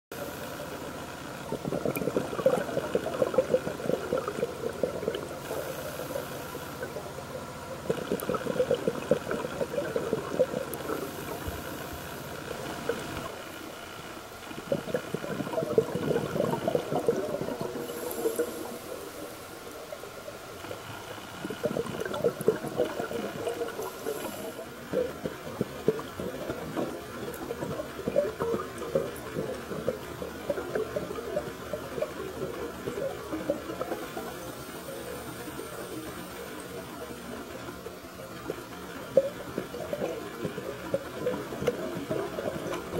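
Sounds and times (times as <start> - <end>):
diver exhaling bubbles underwater: 0.2 - 13.4, 14.5 - 19.4, 20.8 - 37.4
diver inhaling on regulator: 5.4 - 7.0, 17.7 - 19.4, 22.9 - 24.7.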